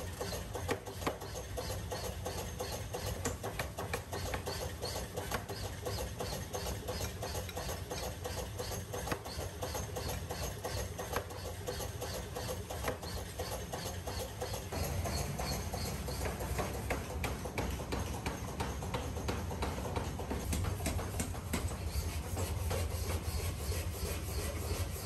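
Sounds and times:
power hammer striking steel: 13.8 - 24.6
machine drive hum: 14.7 - 21.9.

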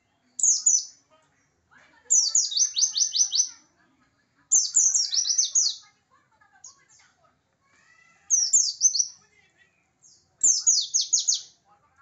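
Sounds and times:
bird singing whistled notes: 2.2 - 3.5, 8.3 - 9.1, 10.4 - 11.5.

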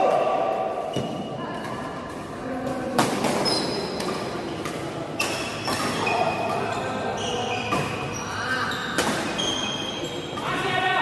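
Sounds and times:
racket hitting shuttlecock: 2.8 - 6.6, 7.6 - 8.1, 8.9 - 9.4
shoes squeaking on court floor: 3.0 - 10.6.

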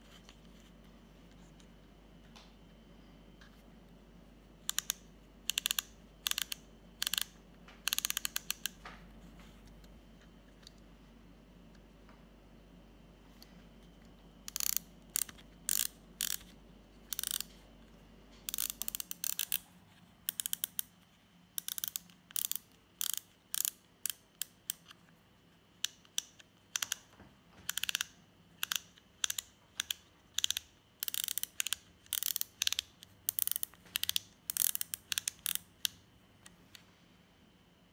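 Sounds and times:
metal mechanism clicking: 4.6 - 8.8, 14.5 - 17.6, 18.5 - 20.9, 21.6 - 25.0, 25.8 - 36.0.

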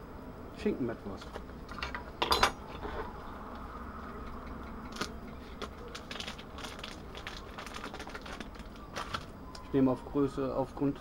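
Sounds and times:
low steady hum: 0.0 - 11.0
plastic packaging crinkling: 4.9 - 9.7.

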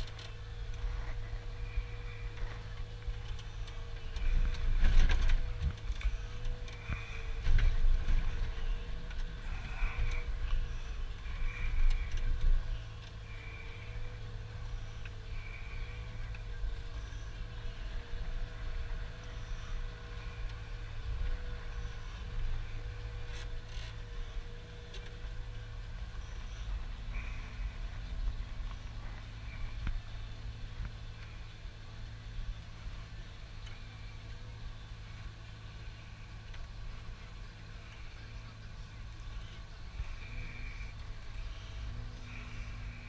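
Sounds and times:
engine running steadily: 0.0 - 43.0
wavering hydraulic whine: 0.0 - 43.0.

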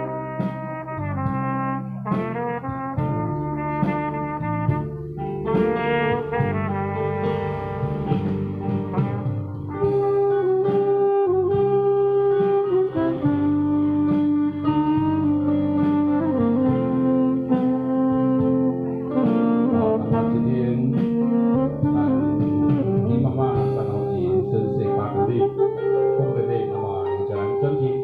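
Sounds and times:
band backing accompaniment: 0.0 - 28.0
saxophone melody: 0.0 - 28.0
trumpet melody: 0.0 - 28.0.

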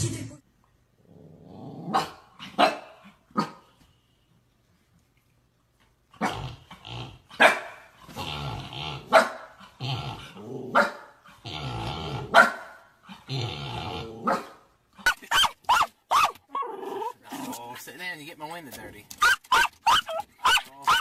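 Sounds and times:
puppy growling: 1.0 - 2.6, 8.0 - 12.4, 13.1 - 14.5, 16.4 - 17.6
puppy barking: 1.9 - 3.6, 7.4 - 7.9, 9.1 - 9.5, 10.7 - 11.1, 12.3 - 12.8, 14.2 - 16.7, 19.2 - 21.0.

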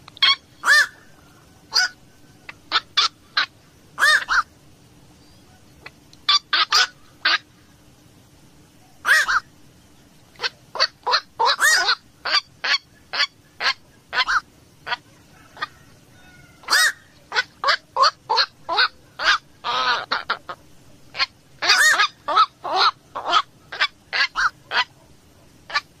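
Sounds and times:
heron harsh calls: 0.2 - 1.1, 2.7 - 4.5, 6.3 - 7.5, 9.0 - 9.5, 10.4 - 15.8, 16.6 - 25.0.

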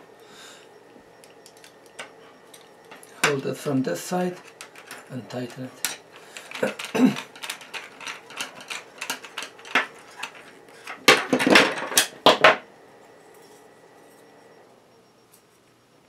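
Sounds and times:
metal tools clattering on table: 5.8 - 12.6.

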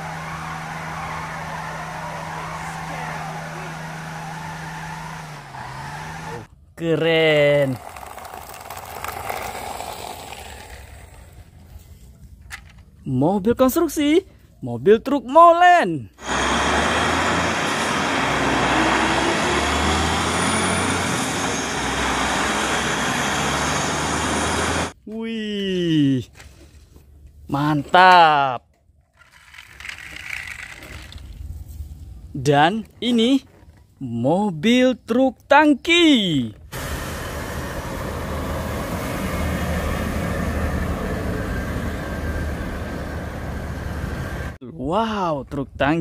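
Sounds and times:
diesel engine rumble: 0.0 - 6.5, 16.2 - 25.0, 36.6 - 44.6
road and traffic noise: 0.0 - 6.7, 7.4 - 13.1, 16.2 - 25.0, 36.5 - 44.6.

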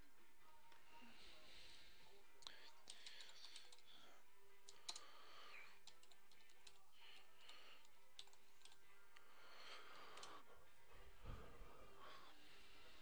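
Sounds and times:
computer keyboard typing: 2.4 - 3.9, 4.7 - 5.1, 5.8 - 8.8, 10.1 - 10.3.

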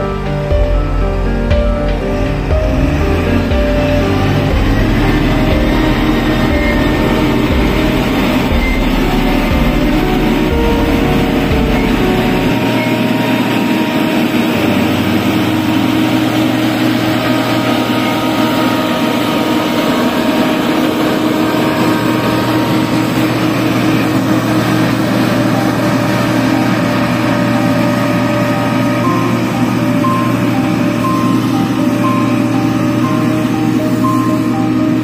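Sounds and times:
diesel engine running under load: 0.0 - 35.0.

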